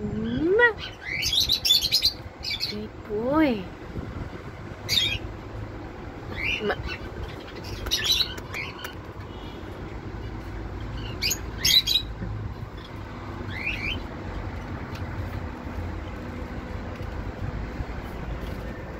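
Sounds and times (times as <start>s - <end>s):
steady low rumble: 0.0s - 18.9s
parrot squawking: 11.0s - 12.1s.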